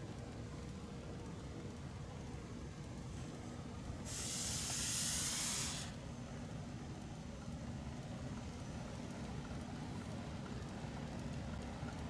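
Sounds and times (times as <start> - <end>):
burst of hiss: 4.1 - 6.0.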